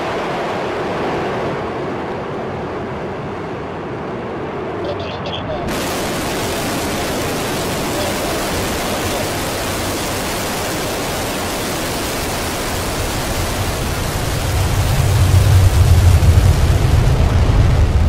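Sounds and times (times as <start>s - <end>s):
rocket engines roaring: 0.0s - 18.0s
deep rumble: 4.5s - 18.0s.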